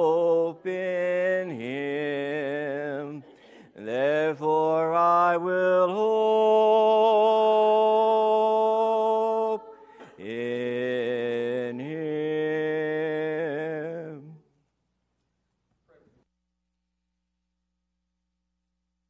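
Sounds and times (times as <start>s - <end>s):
congregation singing unaccompanied: 0.0s - 14.4s.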